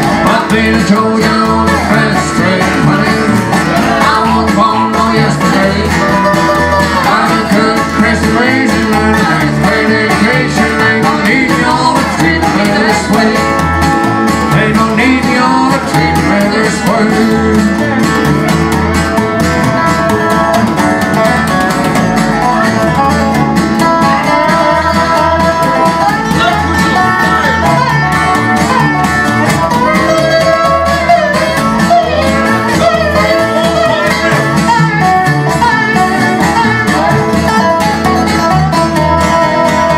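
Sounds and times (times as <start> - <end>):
plucked upright bass: 0.0 - 39.9
resonator guitar sliding lead: 0.0 - 39.9
strummed acoustic guitar: 0.0 - 39.9.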